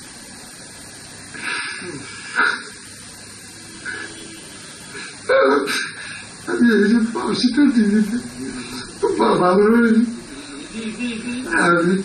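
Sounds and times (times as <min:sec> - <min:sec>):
steady hiss: 0:00.0 - 0:12.0
man breathing heavily: 0:04.9 - 0:06.4.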